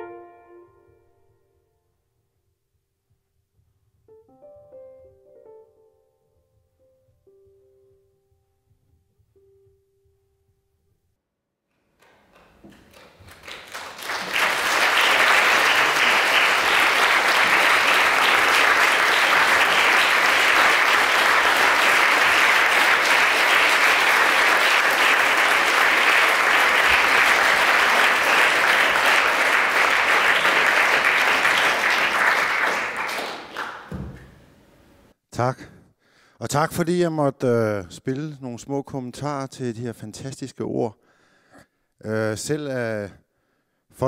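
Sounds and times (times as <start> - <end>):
audience applauding: 12.0 - 34.0.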